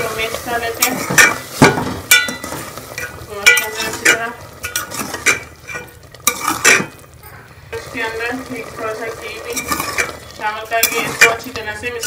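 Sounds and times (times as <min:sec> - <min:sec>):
food sizzling in oil: 0:00.0 - 0:12.0
metal spoon scraping a metal pot: 0:02.1 - 0:07.0, 0:08.8 - 0:12.0.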